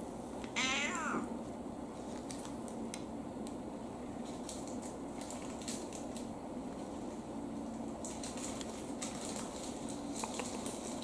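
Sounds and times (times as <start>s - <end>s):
cat meowing: 0.6s - 1.3s.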